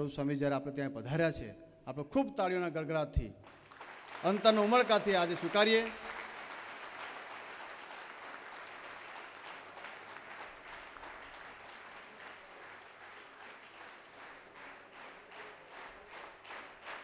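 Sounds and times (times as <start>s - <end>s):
crowd applauding: 3.4s - 17.0s.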